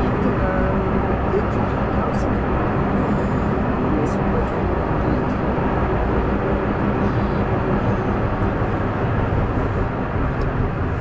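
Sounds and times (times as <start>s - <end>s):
cable car running on track: 0.0s - 11.0s
faint hum: 0.0s - 11.0s.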